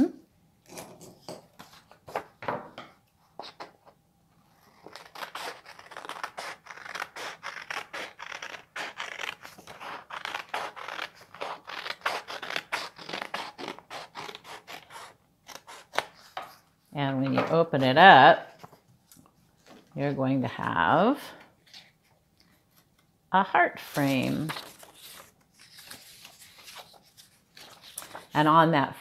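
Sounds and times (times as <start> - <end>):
scissors snipping paper: 4.7 - 16.6
paper rustling: 23.8 - 28.5.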